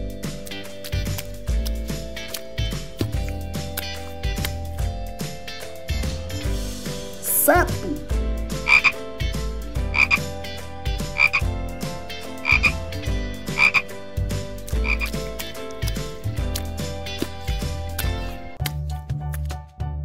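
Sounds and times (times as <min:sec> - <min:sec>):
frog croaking: 0:08.6 - 0:09.0, 0:09.9 - 0:10.3, 0:11.2 - 0:11.5, 0:12.4 - 0:12.9, 0:13.5 - 0:13.9, 0:14.8 - 0:15.2.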